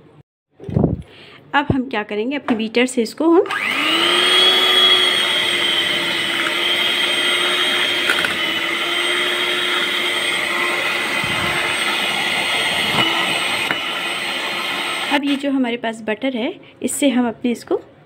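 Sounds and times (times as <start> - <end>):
electric hand beater whining: 3.5 - 15.3.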